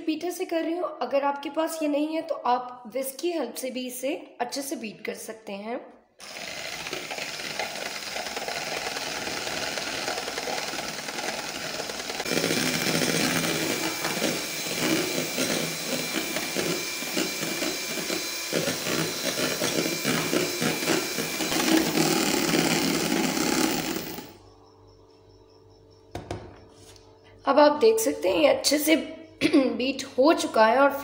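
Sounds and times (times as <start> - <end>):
electric hand mixer whisking: 6.2 - 24.4.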